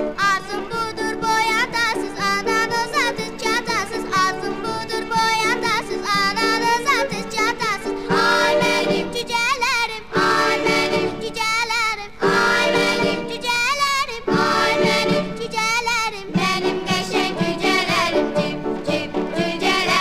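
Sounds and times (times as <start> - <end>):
cheerful song with high voice: 0.0 - 20.0.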